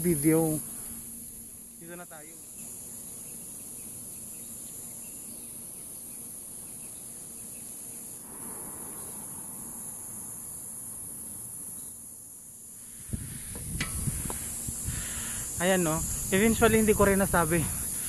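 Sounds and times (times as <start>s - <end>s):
insects shrilling: 0.0s - 18.0s
soft rushing noise: 8.2s - 11.2s, 12.8s - 17.8s.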